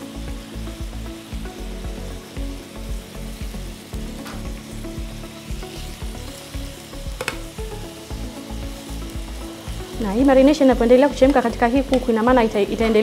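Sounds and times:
food sizzling in a frying pan: 0:00.0 - 0:13.0.

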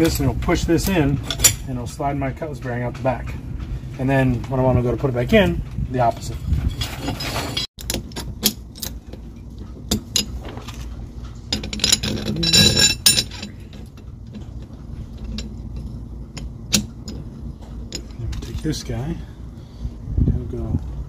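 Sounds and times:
metal parts clicking and clinking: 0:00.0 - 0:04.6, 0:06.0 - 0:19.2
ringing metal clinks: 0:11.5 - 0:13.8.

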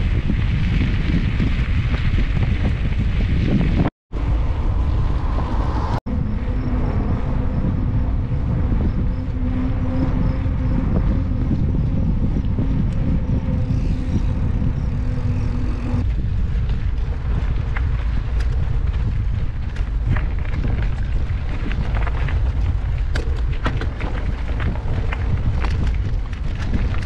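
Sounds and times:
wind rumbling on microphone: 0:00.0 - 0:27.0
steady hum: 0:04.2 - 0:16.1
bike clicks and rattles: 0:10.4 - 0:27.0.

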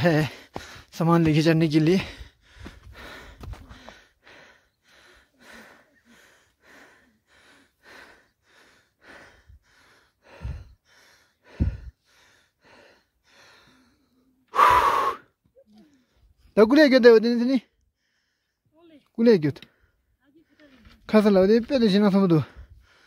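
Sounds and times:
heavy rapid breathing: 0:00.0 - 0:15.4, 0:22.4 - 0:23.0.

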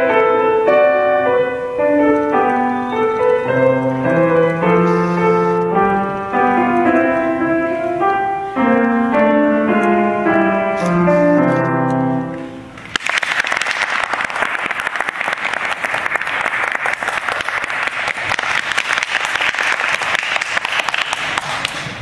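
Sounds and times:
grand piano playing: 0:00.0 - 0:13.0
audience applauding: 0:12.8 - 0:22.0.

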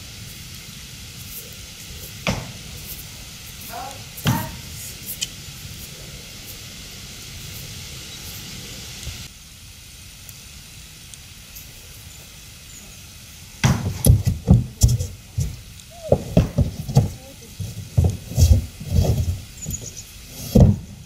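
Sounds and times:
steady outdoor hiss: 0:00.0 - 0:21.0
hooves thudding on hollow plastic: 0:02.2 - 0:02.6, 0:13.6 - 0:19.4, 0:20.5 - 0:21.0.

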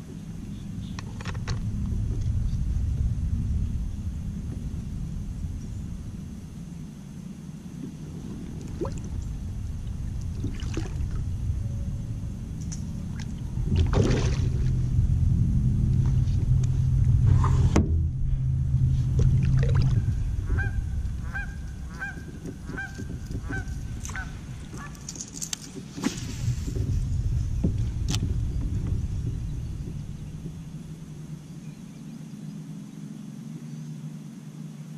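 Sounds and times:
low rumble: 0:00.0 - 0:32.6
bird calling: 0:19.8 - 0:25.2.

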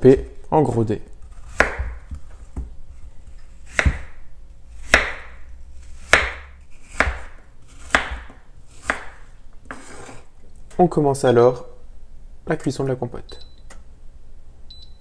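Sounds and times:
knife chopping on wooden board: 0:01.3 - 0:02.7, 0:03.7 - 0:04.2, 0:04.8 - 0:05.4, 0:06.0 - 0:10.2.

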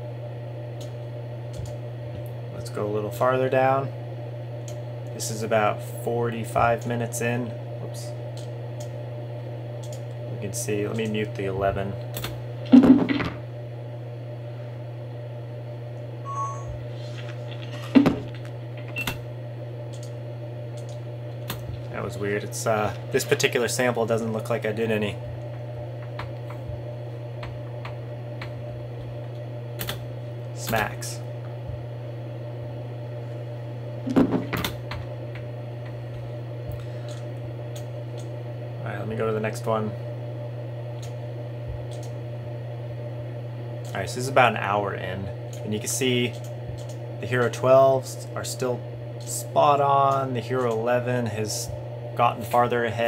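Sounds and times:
low hum: 0:07.1 - 0:44.6
short high beep: 0:16.2 - 0:16.8.

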